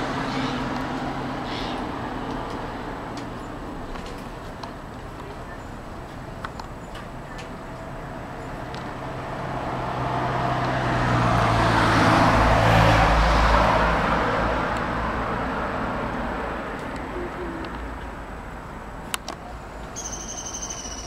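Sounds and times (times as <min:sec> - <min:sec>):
car passing by: 0:09.0 - 0:16.9.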